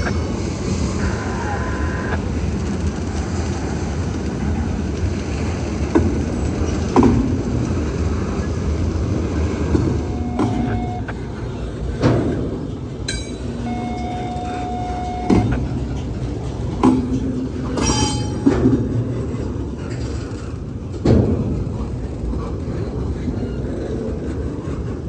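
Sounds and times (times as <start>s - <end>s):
freight train rumbling past: 0.0s - 25.0s
wheels knocking on rail joints: 2.2s - 25.0s
high wheel squeals: 9.8s - 11.1s, 13.3s - 16.1s.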